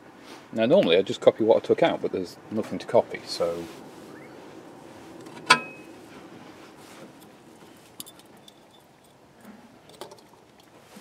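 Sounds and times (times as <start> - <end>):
metallic clink: 5.4 - 5.8, 8.0 - 10.0
small metal parts clicking: 8.0 - 10.7.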